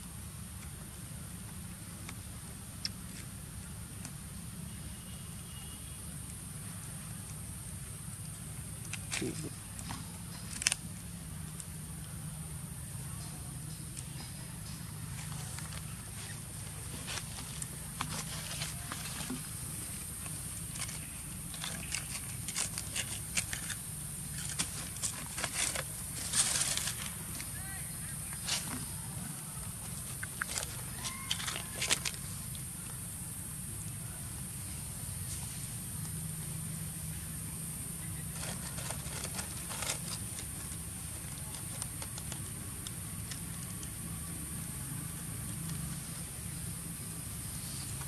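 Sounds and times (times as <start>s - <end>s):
monkeys scrambling over leaves: 14.4s - 32.5s, 38.1s - 43.8s
steady high hiss: 31.9s - 38.4s.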